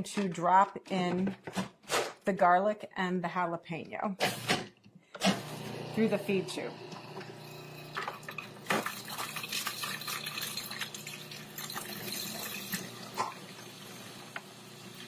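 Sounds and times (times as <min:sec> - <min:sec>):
food processor motor hum: 0:05.2 - 0:15.0.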